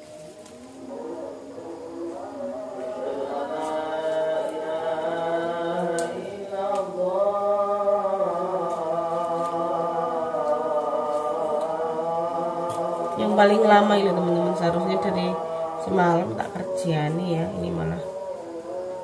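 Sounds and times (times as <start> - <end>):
chanting from a loudspeaker: 0.0 - 19.0
plant stems snapping: 5.8 - 6.9.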